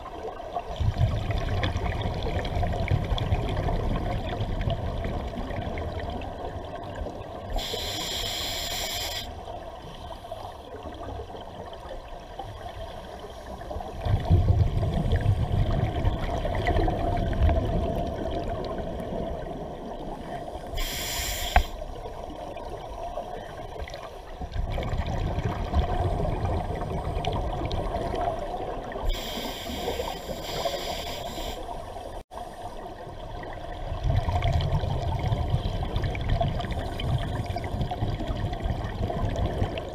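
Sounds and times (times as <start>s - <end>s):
low bubbling rumble: 0.7s - 6.9s, 14.0s - 20.1s, 24.4s - 29.0s, 33.5s - 39.9s
regulator bubbles hissing: 7.5s - 9.6s, 14.0s - 22.0s, 28.9s - 32.9s.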